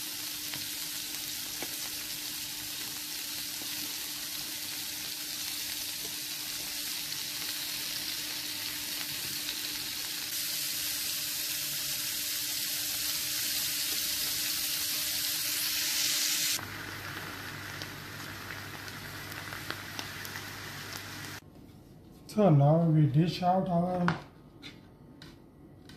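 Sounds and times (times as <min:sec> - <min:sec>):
steaks sizzling in sauce: 0:00.0 - 0:21.4
vegetables sizzling in frying pan: 0:00.0 - 0:21.4.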